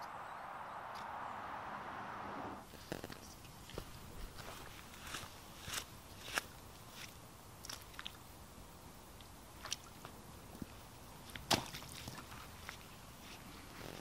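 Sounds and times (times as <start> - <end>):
footsteps on muddy sandy track: 3.6 - 7.2.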